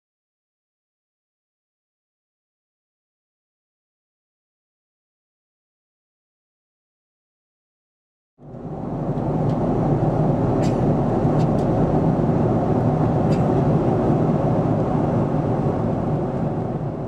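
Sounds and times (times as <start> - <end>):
airliner cabin engine roar: 8.4 - 17.0.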